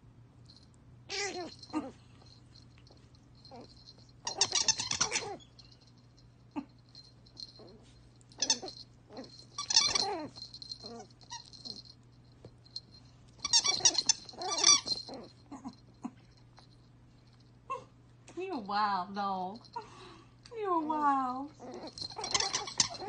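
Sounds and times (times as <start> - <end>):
squeaky toy squeaks: 1.1 - 1.9, 3.5 - 5.7, 8.4 - 11.8, 13.4 - 15.7, 21.6 - 23.0
dog chewing a toy: 1.1 - 6.3, 6.9 - 17.5, 21.5 - 23.0.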